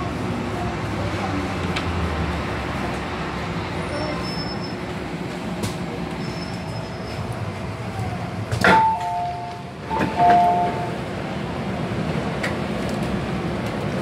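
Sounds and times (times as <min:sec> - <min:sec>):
train rumbling while slowing: 0:00.0 - 0:14.0
two-tone door chime: 0:08.7 - 0:11.0.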